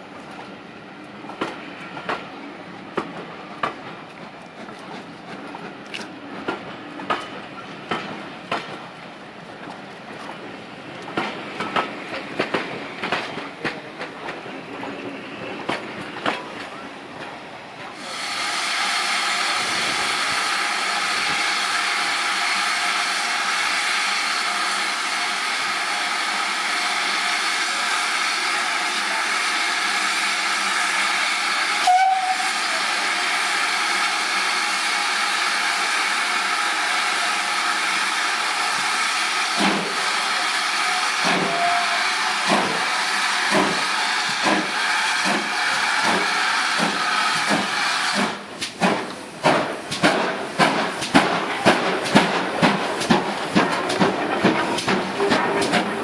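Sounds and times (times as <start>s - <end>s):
steam hissing: 18.0s - 56.0s.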